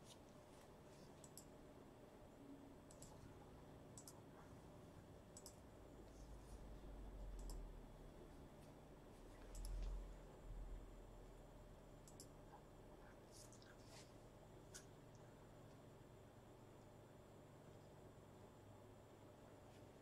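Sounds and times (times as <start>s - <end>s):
faint low rumble: 2.2s - 16.2s.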